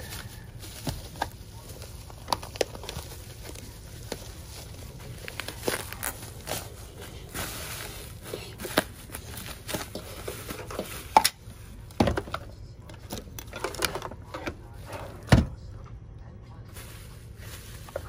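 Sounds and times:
bubble wrap and plastic bag crinkling: 0.0 - 12.0, 16.7 - 18.0.

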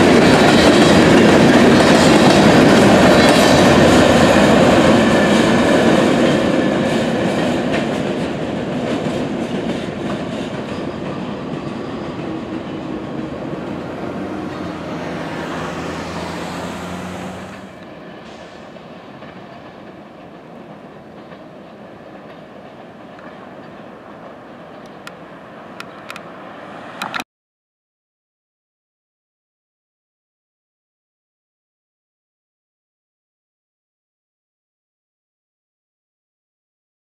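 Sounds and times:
distant train rumble: 0.0 - 27.2
freight train wheels clicking on rails: 0.0 - 27.2.

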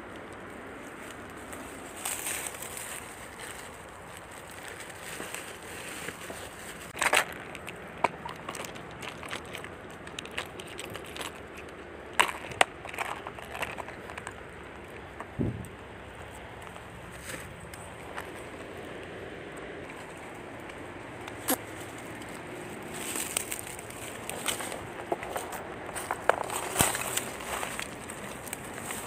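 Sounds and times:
gear crackling on dry leaves: 0.0 - 29.0
loud crunch: 1.1 - 18.8, 19.8 - 29.0.

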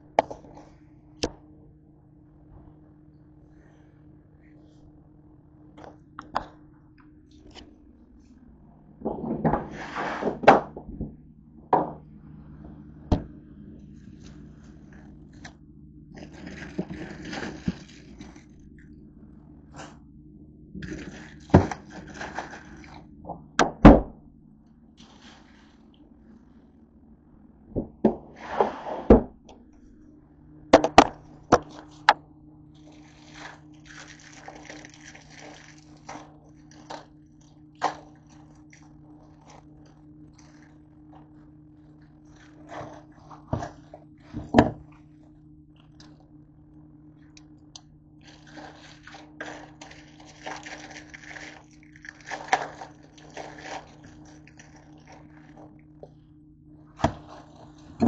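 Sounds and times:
steady low hum: 0.0 - 58.0
plastic packets crinkling: 16.2 - 18.7, 20.8 - 23.0, 32.8 - 37.1, 48.2 - 55.9.

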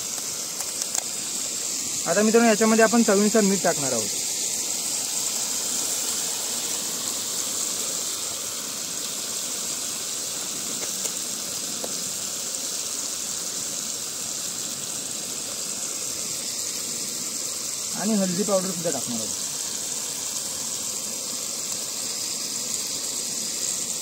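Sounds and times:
faint crackles: 0.0 - 1.4, 10.5 - 12.2
bubbling liquid: 0.0 - 24.0
gas burner flame: 0.0 - 24.0.

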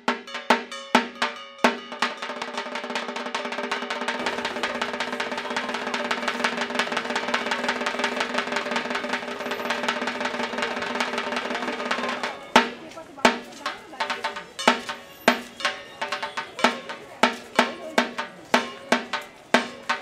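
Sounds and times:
clanging metal drumming: 0.1 - 20.0
ringing tone: 14.5 - 16.9.

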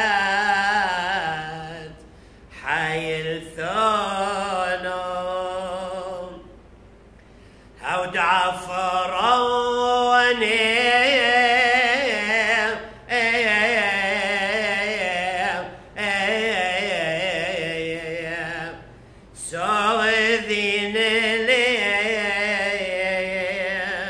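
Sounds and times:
man chanting a hymn: 0.0 - 6.5, 7.8 - 24.0
short breaths: 2.0 - 2.6, 7.1 - 7.8, 18.9 - 19.4.

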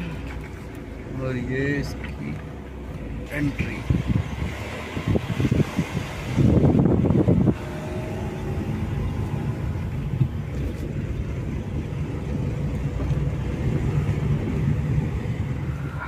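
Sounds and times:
car engine hum from cabin: 0.0 - 16.0
tyre and wind noise: 3.7 - 16.0.

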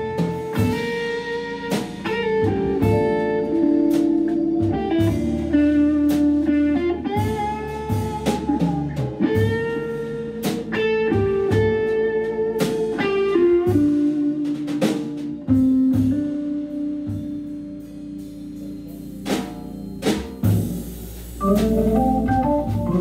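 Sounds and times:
drum kit: 0.0 - 23.0
guitar: 0.0 - 23.0
organ holding chords: 0.0 - 23.0
low bass line: 2.2 - 10.5, 19.8 - 23.0.

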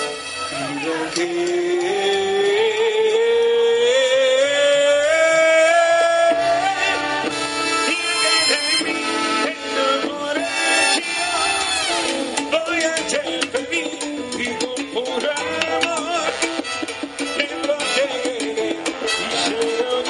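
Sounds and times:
man singing long note: 0.0 - 12.1
salsa band playing: 0.0 - 20.0.

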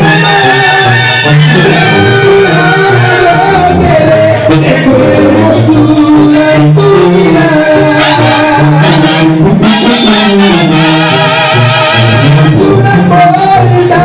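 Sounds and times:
clarinets and trumpets: 0.0 - 3.7, 7.6 - 13.4
voices singing: 0.0 - 10.0, 12.3 - 14.0
bass line: 0.0 - 14.0.

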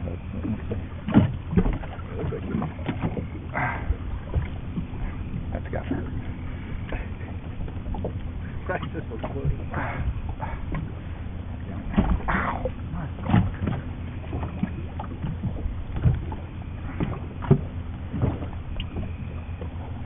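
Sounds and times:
steady low rumble: 0.0 - 20.0.

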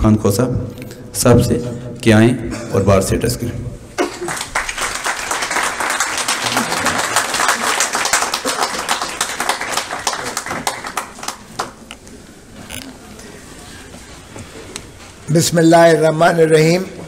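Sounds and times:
audience applause: 4.0 - 11.8.

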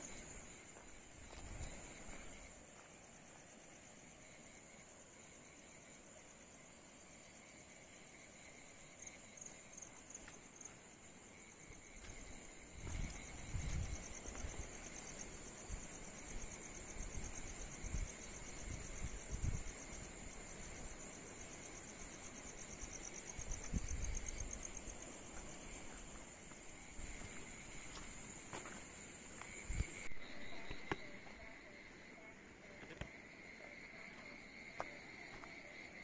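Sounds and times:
insects trilling: 0.0 - 36.0
footsteps on damp soil: 11.9 - 15.0, 25.2 - 31.5.

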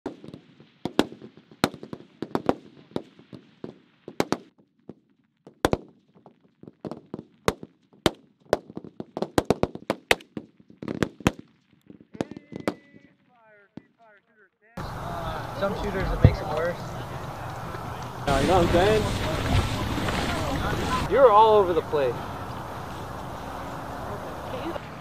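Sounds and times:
rifle shots: 0.0 - 4.5
steady hiss: 18.2 - 24.8.

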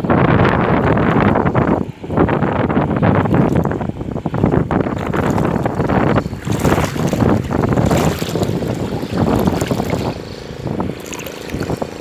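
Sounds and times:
wind buffeting microphone: 0.0 - 12.0
water sloshing and splashing: 3.1 - 12.0.

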